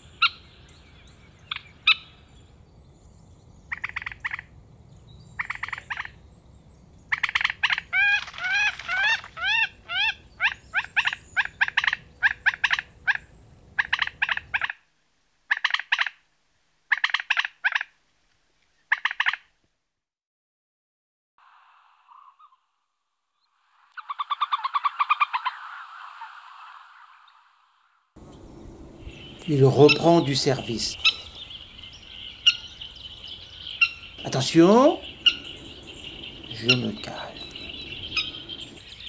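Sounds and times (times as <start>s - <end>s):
low background rumble: 28.1s - 39.0s
bird calling in sharp notes: 28.2s - 39.0s.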